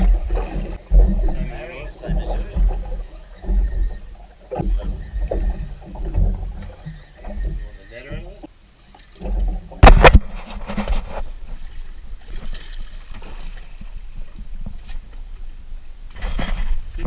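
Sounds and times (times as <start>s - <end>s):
water splashing against boat: 0.0s - 17.0s
sharp knock on boat: 9.8s - 10.2s.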